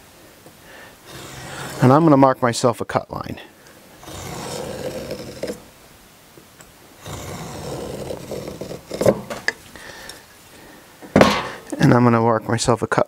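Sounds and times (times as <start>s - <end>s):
knife scraping wood: 1.0s - 2.0s, 4.0s - 5.7s, 7.0s - 9.6s.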